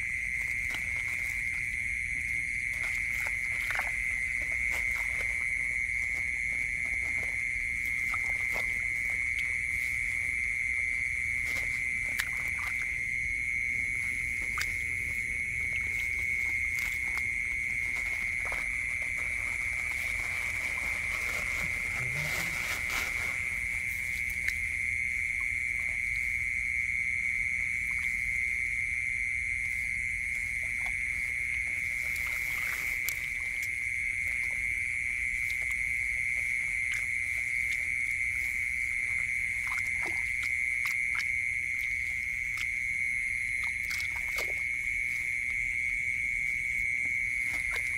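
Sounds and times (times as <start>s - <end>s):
chorus of night-calling animals: 0.0s - 47.9s
hands splashing in muddy water: 2.4s - 22.6s
plastic bag rustling: 19.2s - 23.6s.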